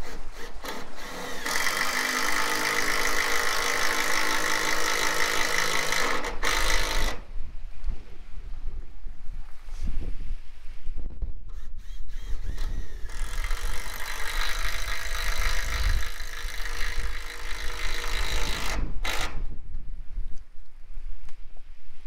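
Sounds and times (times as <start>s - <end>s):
cordless driver whining: 0.0s - 7.3s, 11.5s - 19.6s
wind rumble on microphone: 6.8s - 22.0s.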